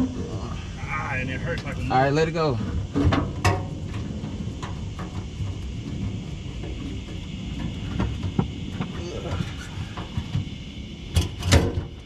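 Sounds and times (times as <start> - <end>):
steady low rumble: 0.0 - 12.0
knocks and clunks of fuel tank: 2.9 - 9.0.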